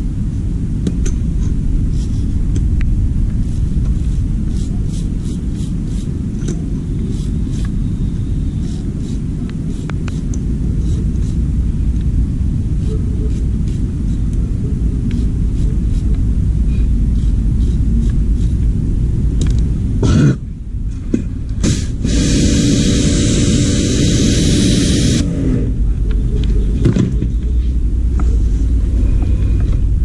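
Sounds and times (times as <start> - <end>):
low machine rumble: 0.0 - 30.0
high-pressure spray hiss: 21.6 - 25.2.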